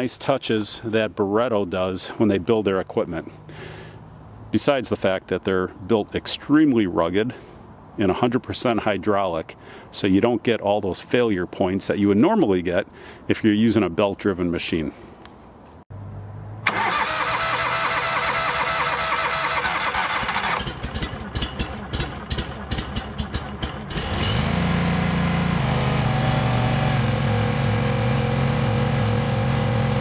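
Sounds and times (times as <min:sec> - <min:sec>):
gas engine starting and running: 0:16.6 - 0:30.0.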